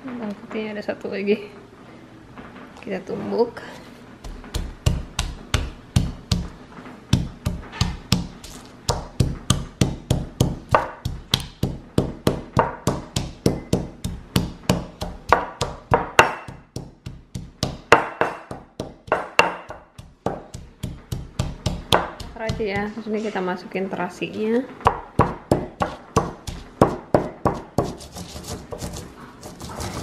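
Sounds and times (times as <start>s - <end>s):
pestle pounding in stone mortar: 4.2s - 23.0s, 24.8s - 30.0s.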